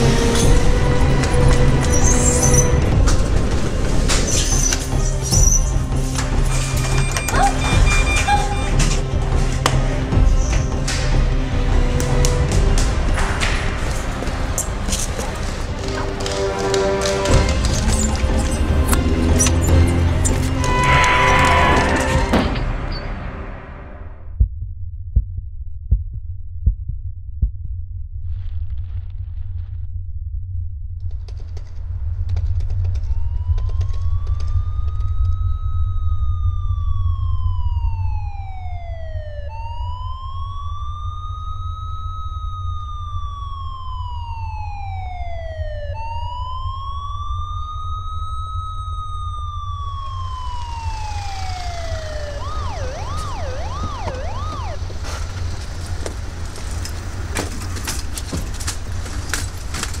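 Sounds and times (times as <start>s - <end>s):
low rumble: 0.0s - 60.0s
emergency siren wailing and yelping: 6.6s - 9.2s, 33.0s - 58.6s.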